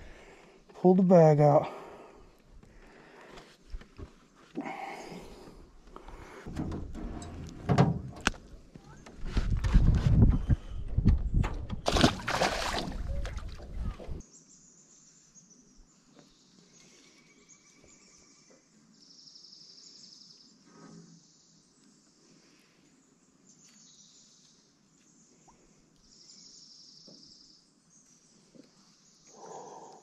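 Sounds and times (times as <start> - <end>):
low bump: 6.5 - 14.2.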